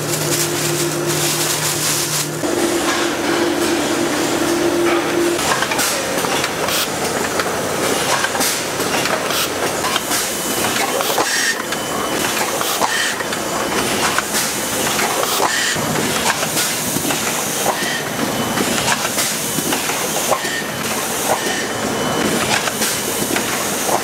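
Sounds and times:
filling machine clattering: 0.0 - 24.0.

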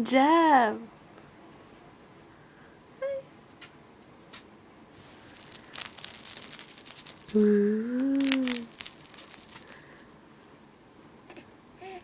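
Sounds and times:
soft toy rattling: 5.2 - 10.2.

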